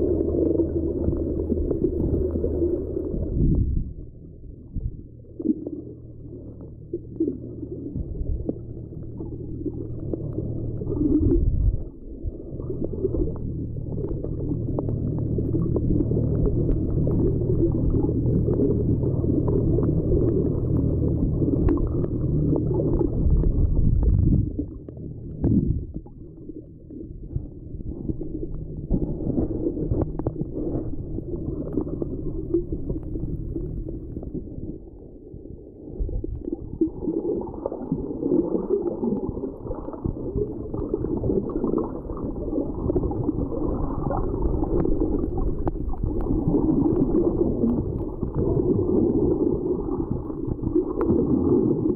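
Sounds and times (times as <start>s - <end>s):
steady low drone: 0.0s - 36.8s
underwater gurgling water: 0.0s - 51.9s.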